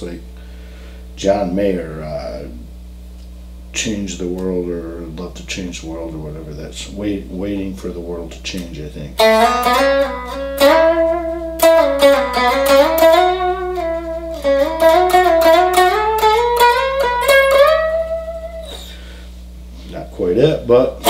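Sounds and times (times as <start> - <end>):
electric guitar lick with slides: 9.2 - 19.3.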